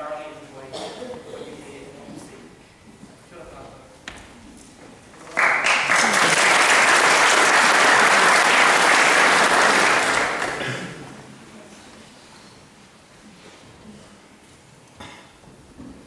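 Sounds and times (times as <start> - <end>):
audience applauding: 5.2 - 11.2.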